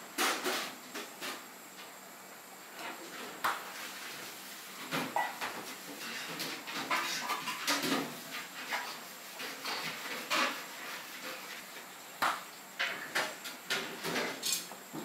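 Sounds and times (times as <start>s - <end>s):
dishes and utensils clinking: 12.8s - 14.7s.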